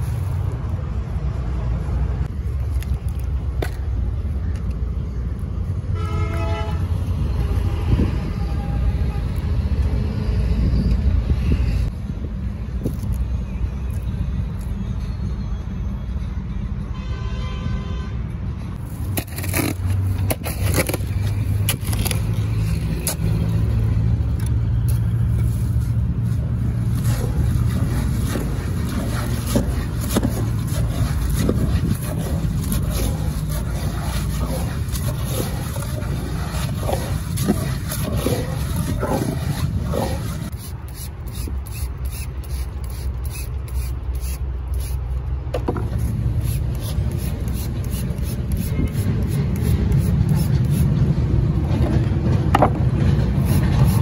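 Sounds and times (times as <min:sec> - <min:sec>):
shovel scraping through gravel: 0:18.8 - 0:23.7, 0:24.9 - 0:44.4.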